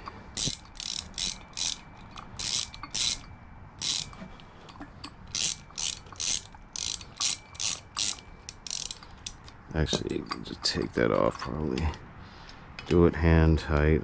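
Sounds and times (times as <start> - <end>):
socket ratchet clicking: 0.0 - 4.2, 5.3 - 10.4.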